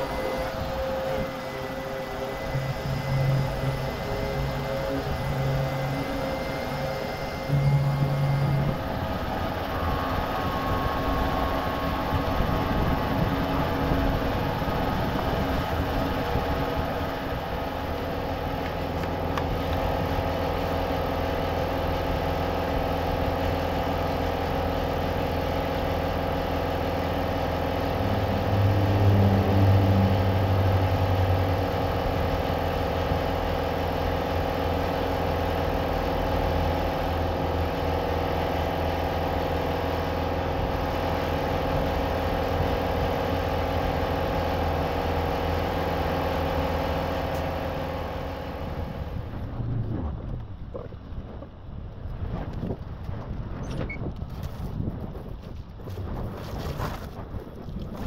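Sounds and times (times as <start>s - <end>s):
motor humming: 0.0s - 51.5s.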